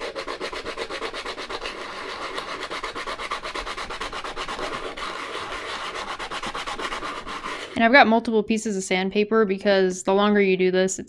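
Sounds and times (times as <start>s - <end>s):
stone rubbed on sandpaper: 0.0s - 7.8s.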